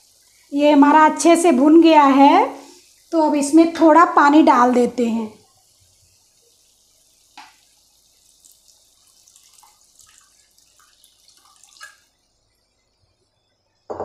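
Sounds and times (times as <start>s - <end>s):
water trickling into a pan: 0.0s - 13.8s.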